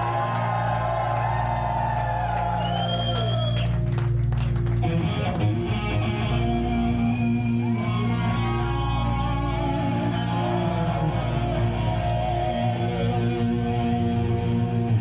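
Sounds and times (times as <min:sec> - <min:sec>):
electric guitar bending notes: 0:04.7 - 0:15.0.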